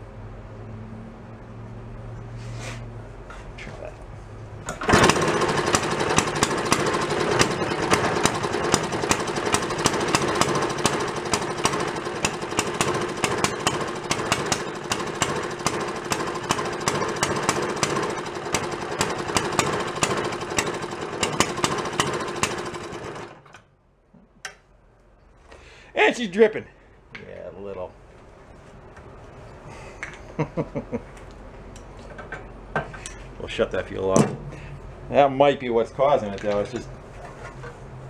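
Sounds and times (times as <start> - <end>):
single-cylinder engine running: 4.6 - 23.6.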